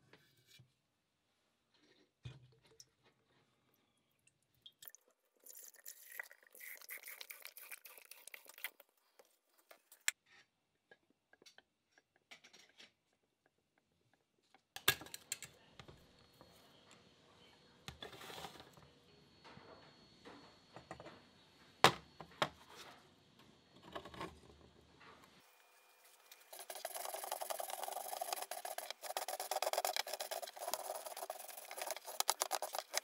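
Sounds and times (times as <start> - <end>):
liquid poured into glass jar: 4.2 - 8.8.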